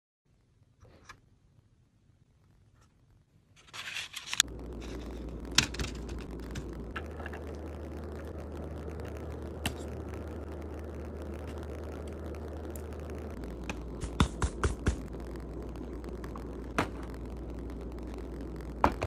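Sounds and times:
steady low hum: 0:04.3 - 0:19.0.

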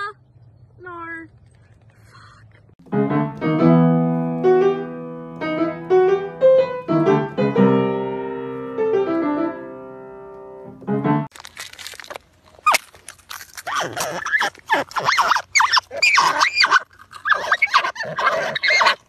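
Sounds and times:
piano notes and chords: 0:02.8 - 0:11.3.

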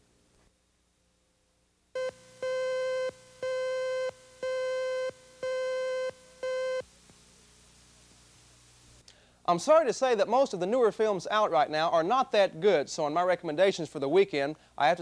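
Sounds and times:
steady electronic beeps: 0:02.0 - 0:06.8.

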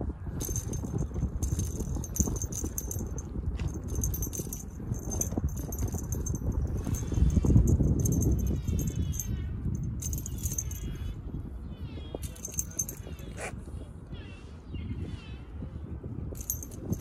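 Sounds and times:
small bell jingling: 0:00.4 - 0:11.1, 0:12.2 - 0:13.5, 0:16.4 - 0:17.0.

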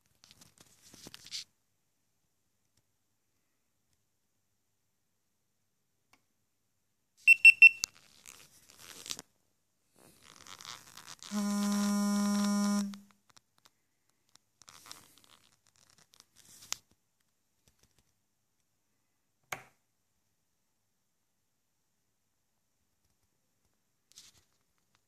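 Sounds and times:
high electronic beeps: 0:07.3 - 0:07.8
low electronic buzz: 0:11.4 - 0:13.0.

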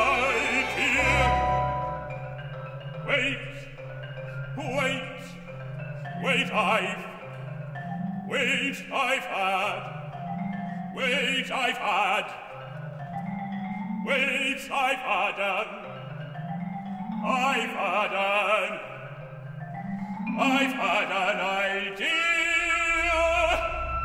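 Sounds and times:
tuned mallet percussion: 0:00.0 - 0:21.9
vibrato singing: 0:00.0 - 0:24.0.

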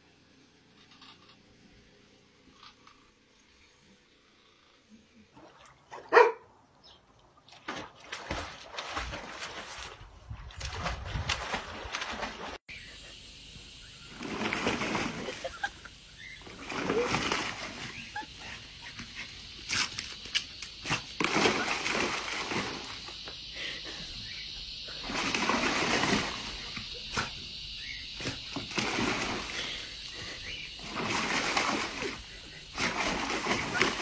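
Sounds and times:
dog splashing in water: 0:07.4 - 0:12.6, 0:14.1 - 0:23.2, 0:25.0 - 0:34.0.

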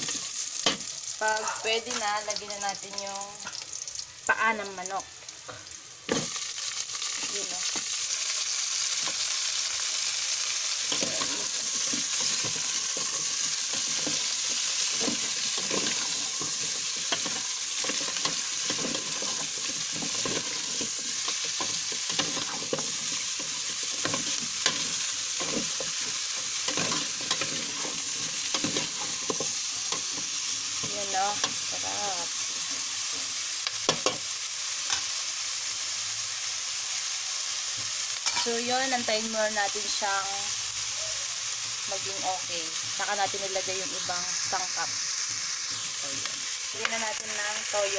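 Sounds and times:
meat sizzling in hot oil: 0:00.0 - 0:47.9
metal spatula scraping a pot: 0:10.9 - 0:30.4.

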